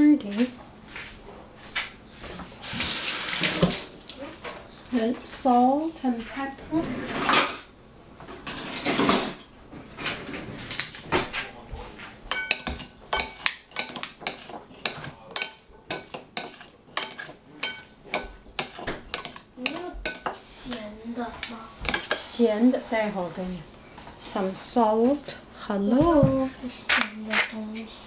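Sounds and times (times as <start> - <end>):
salad servers clinking in glass bowl: 12.3 - 20.4.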